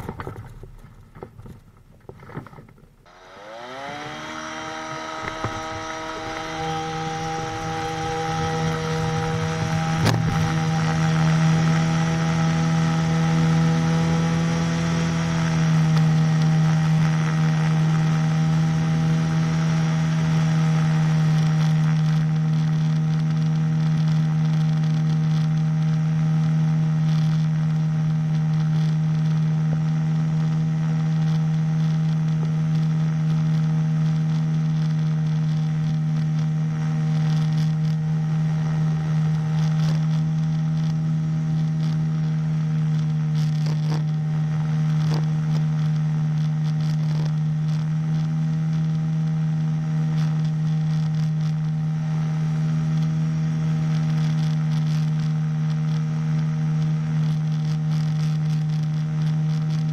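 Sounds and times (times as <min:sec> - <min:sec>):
small engine and propeller running: 0:02.3 - 0:59.9
wind rush over microphone: 0:03.9 - 0:14.6.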